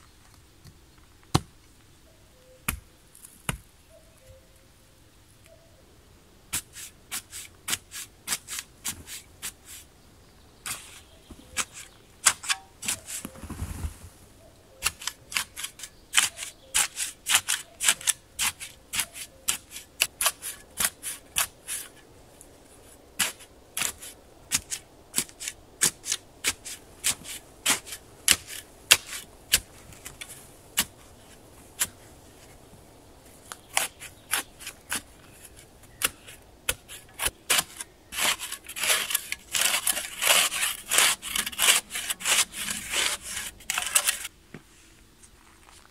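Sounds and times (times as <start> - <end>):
shovel cutting into sandy soil: 6.6 - 9.9, 10.7 - 14.0, 14.8 - 22.0, 23.2 - 32.0, 33.7 - 44.3.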